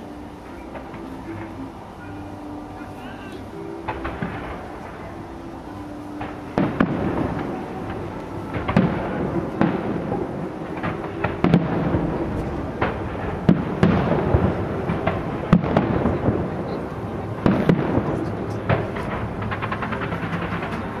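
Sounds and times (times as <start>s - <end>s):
distant firework booms echoing: 6.1s - 21.0s.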